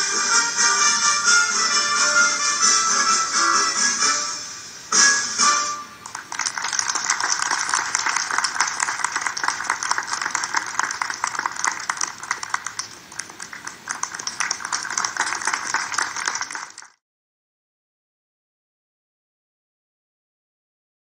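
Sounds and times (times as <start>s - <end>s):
audience applauding: 6.0s - 17.0s.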